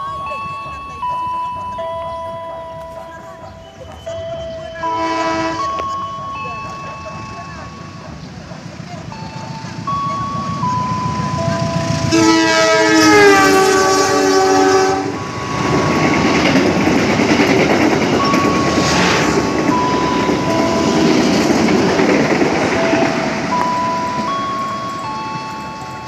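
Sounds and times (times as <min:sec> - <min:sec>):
train wheels rumbling on rails: 0:00.0 - 0:26.0
train horn: 0:04.8 - 0:05.9, 0:11.9 - 0:15.2.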